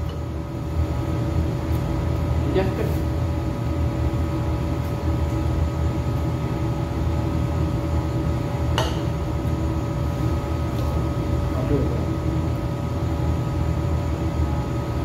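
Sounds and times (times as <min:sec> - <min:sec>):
air conditioner humming: 0:00.0 - 0:15.0.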